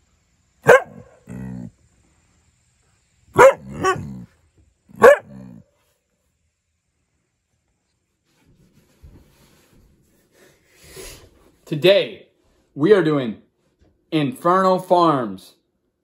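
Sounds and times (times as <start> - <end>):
dog barking: 0.6 - 1.7, 3.4 - 4.3, 5.0 - 5.6.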